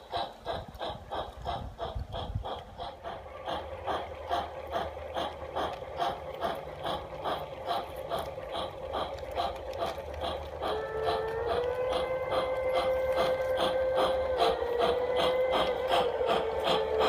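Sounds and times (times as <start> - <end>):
model steam locomotive chuffing: 0.0 - 17.0
steady hum: 0.0 - 17.0
train rumbling on track: 0.0 - 17.0
train chord whistle: 10.6 - 17.0.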